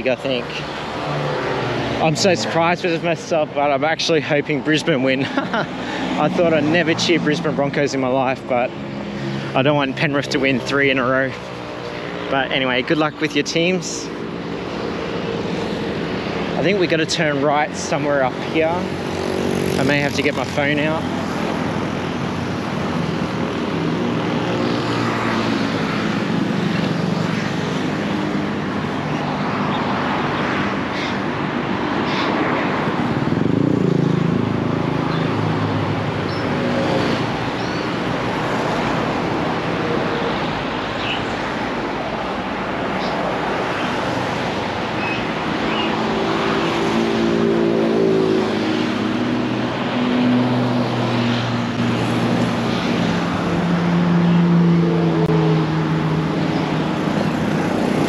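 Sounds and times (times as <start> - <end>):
motorbikes passing: 0.0 - 58.0
road traffic passing: 0.0 - 58.0.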